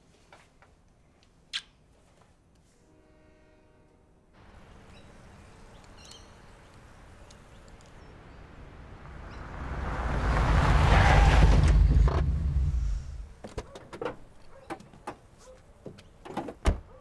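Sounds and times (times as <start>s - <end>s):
car approaching: 4.6s - 13.4s.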